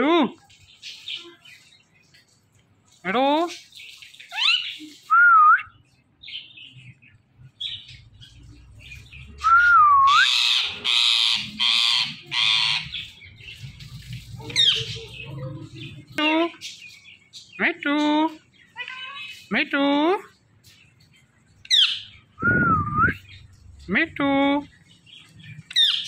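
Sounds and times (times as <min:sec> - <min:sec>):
parakeet squawks: 0:10.1 - 0:13.1.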